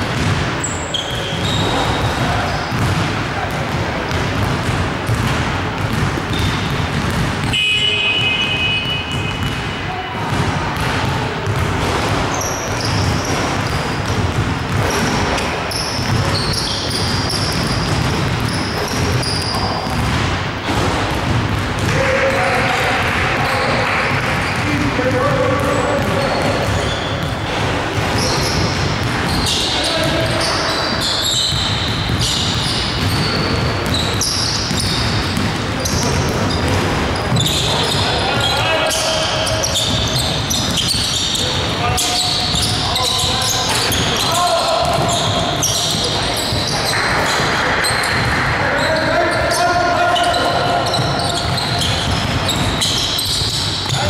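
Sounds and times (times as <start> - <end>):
basketball bouncing on hardwood: 0.0 - 0.6, 1.3 - 22.0, 22.7 - 30.3, 31.0 - 38.5, 50.9 - 54.0
sneakers squeaking on court: 0.0 - 22.0, 22.6 - 54.0.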